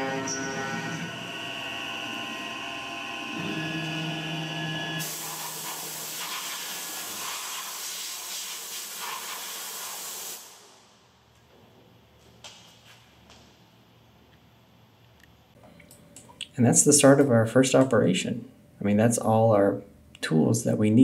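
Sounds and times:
mill cutting metal whine: 0.0 - 5.2
compressed air blow gun hiss: 5.0 - 10.6.

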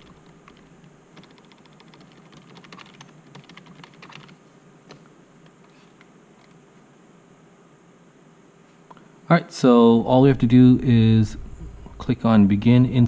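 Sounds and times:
typing on computer keyboard: 0.0 - 5.0.

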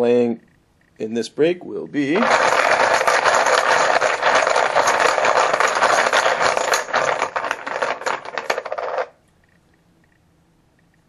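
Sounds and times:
poker chips rattling in a container: 2.1 - 9.2.

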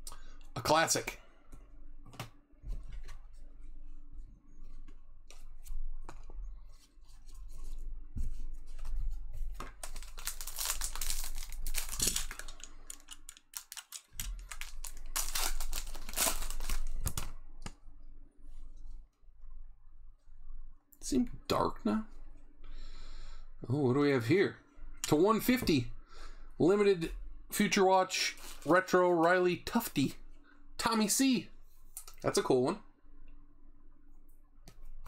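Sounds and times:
foil wrappers tearing and crinkling: 9.8 - 17.3.

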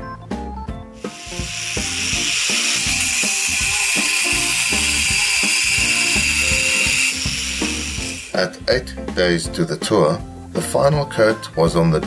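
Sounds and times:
background music with plucked notes: 0.0 - 12.0
workshop tool hissing whir: 1.0 - 9.0.

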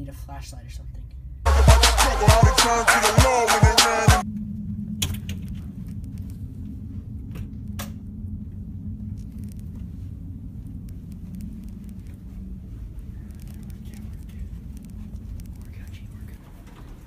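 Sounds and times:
ship machinery rumble and hum: 4.2 - 17.0.

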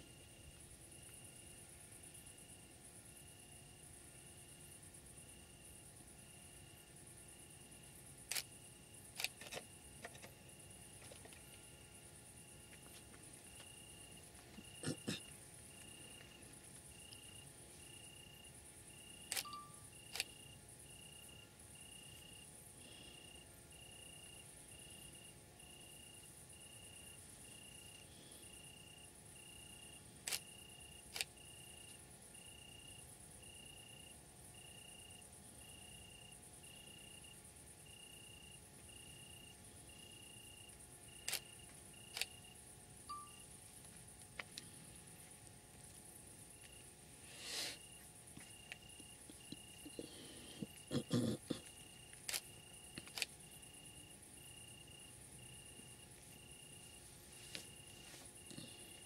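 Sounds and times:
crickets trilling: 0.0 - 59.0
sharp clicks: 41.2 - 41.5, 52.1 - 53.3.

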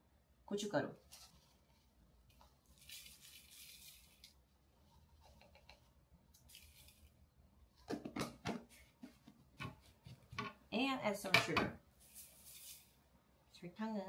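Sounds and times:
chili flakes poured into glass bowl: 2.6 - 4.4.

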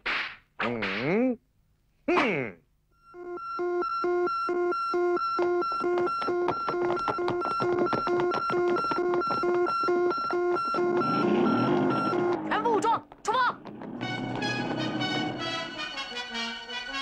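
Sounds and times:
electronic alarm beeping: 3.0 - 12.9.

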